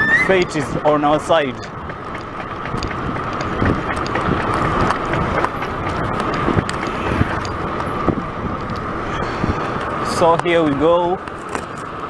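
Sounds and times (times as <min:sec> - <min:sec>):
bicycle rattles and knocks: 0:00.0 - 0:12.0
wind and road noise: 0:00.0 - 0:12.0.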